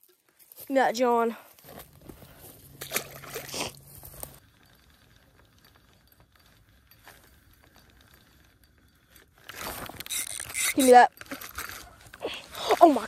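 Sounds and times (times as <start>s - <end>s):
water splashing: 2.8s - 3.8s.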